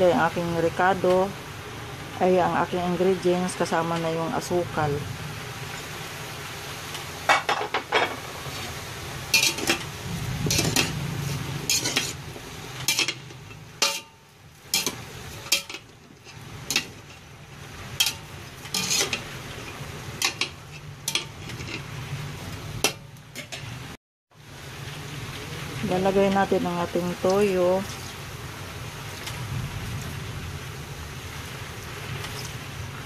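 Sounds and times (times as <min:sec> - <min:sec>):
metal spoon scraping pot: 0:09.3 - 0:09.9, 0:10.5 - 0:11.0, 0:11.6 - 0:12.2, 0:18.0 - 0:19.2, 0:20.2 - 0:21.9.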